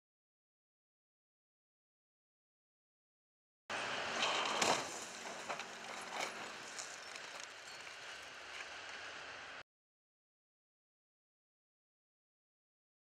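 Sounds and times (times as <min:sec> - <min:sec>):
car crashing into metal barrier: 0:04.1 - 0:06.6.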